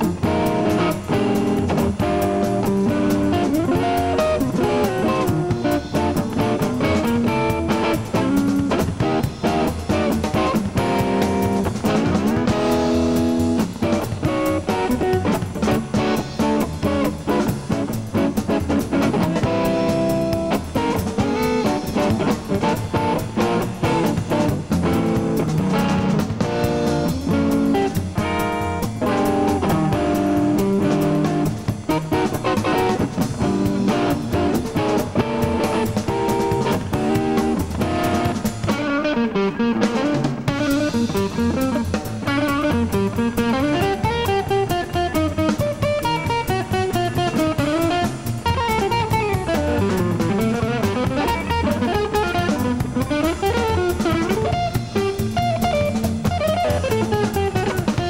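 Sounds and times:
drum kit: 0.0 - 58.0
electric guitar playing: 0.0 - 58.0.

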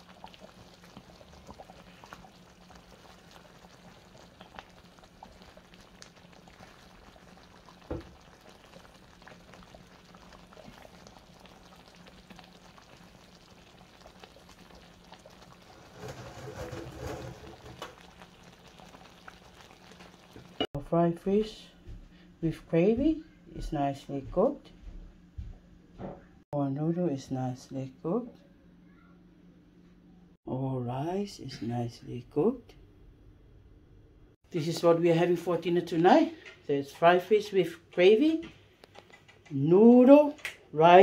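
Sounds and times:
gravy bubbling in a pan: 0.0 - 20.8.

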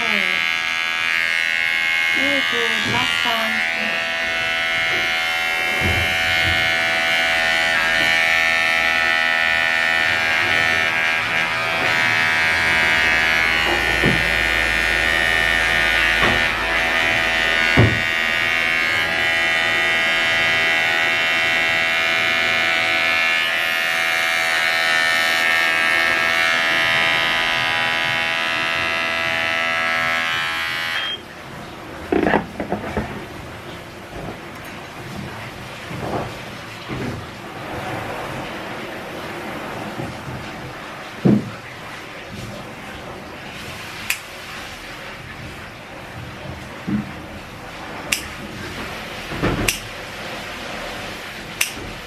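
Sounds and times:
electric dog clipper running: 0.0 - 31.3.

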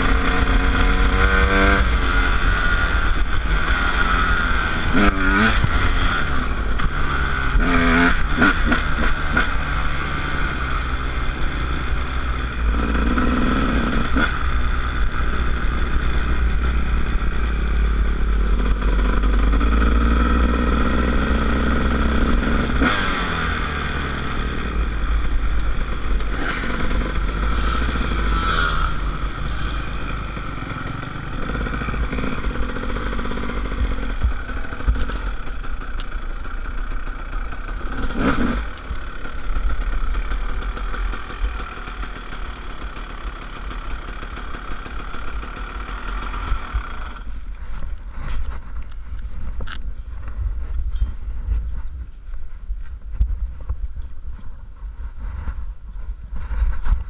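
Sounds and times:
dirt bike engine running: 0.0 - 57.0
wind rumble on microphone: 47.3 - 57.0.

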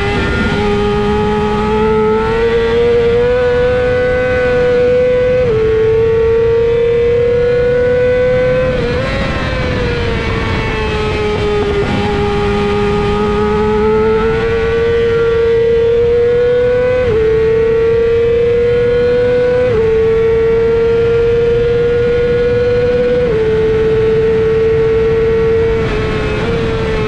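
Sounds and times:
racing engine revving: 0.0 - 27.0
wind noise: 0.0 - 27.0.

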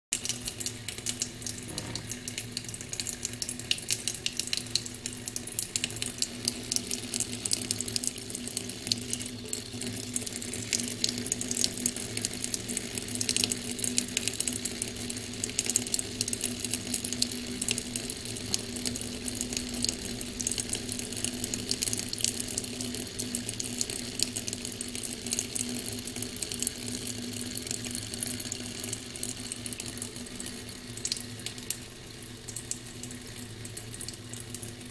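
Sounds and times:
tap water splashing into sink: 0.2 - 25.5.

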